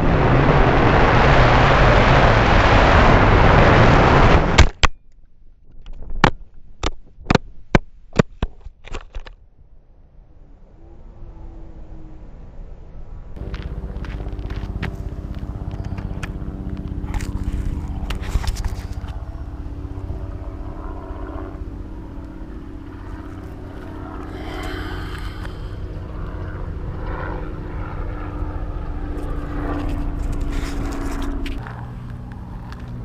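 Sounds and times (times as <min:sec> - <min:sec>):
quadcopter motors humming: 0:10.3 - 0:33.0.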